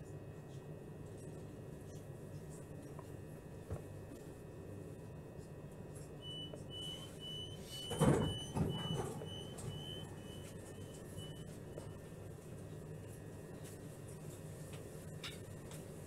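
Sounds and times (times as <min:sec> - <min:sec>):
door warning beeps: 0:06.2 - 0:12.0.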